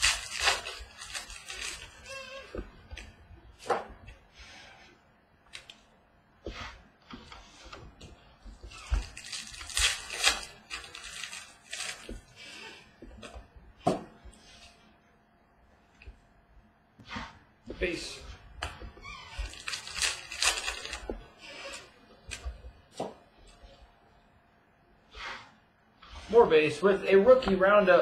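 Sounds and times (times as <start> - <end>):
cards rustling and sliding: 0.0 - 2.3, 9.0 - 12.8, 19.4 - 22.4.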